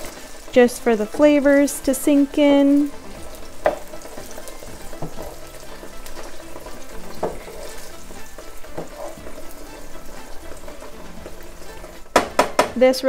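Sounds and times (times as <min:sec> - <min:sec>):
pork chops sizzling in a pan: 0:00.0 - 0:13.0
wooden spatula scraping: 0:02.4 - 0:12.2.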